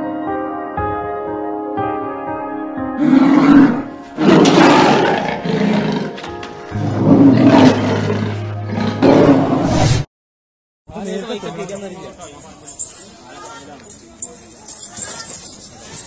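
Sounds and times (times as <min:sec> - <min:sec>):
big cat roaring: 0:03.0 - 0:09.8.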